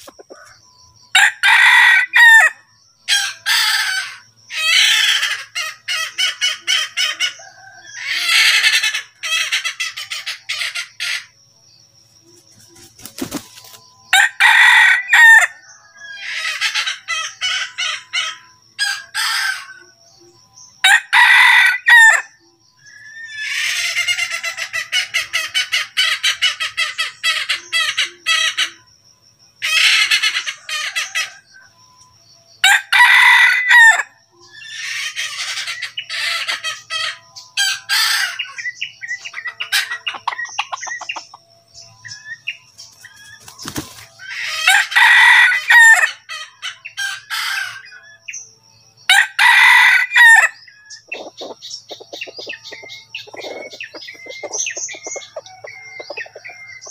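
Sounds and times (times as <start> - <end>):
rooster crowing: 0.1 - 5.3, 7.0 - 8.8, 14.1 - 17.8, 20.8 - 22.3, 32.6 - 35.5, 44.2 - 48.0, 49.0 - 56.9.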